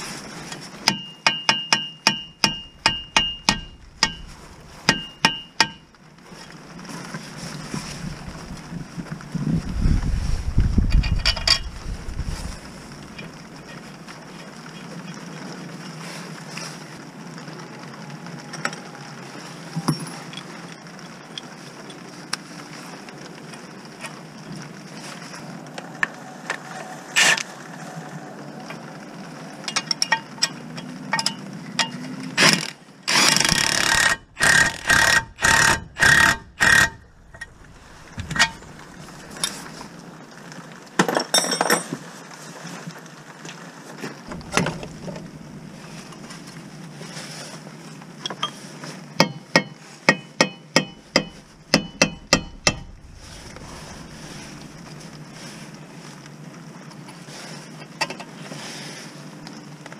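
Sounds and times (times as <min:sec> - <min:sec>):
steady hiss: 0:00.0 - 0:41.0, 0:42.0 - 0:59.9
impact wrench hammering: 0:00.9 - 0:04.2, 0:04.9 - 0:05.8, 0:33.8 - 0:37.0, 0:49.2 - 0:52.9.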